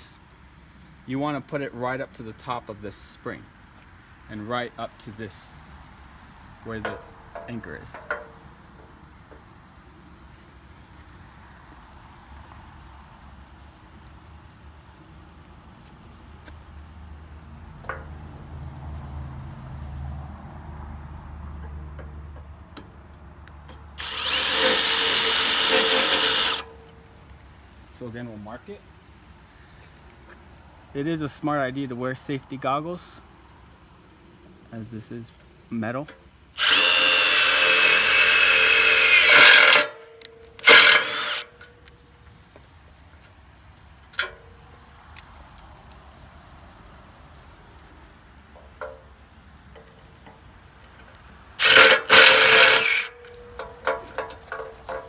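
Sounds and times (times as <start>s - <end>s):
impact driver whining: 24.0s - 26.7s, 36.6s - 40.0s, 40.6s - 41.6s, 51.6s - 53.2s.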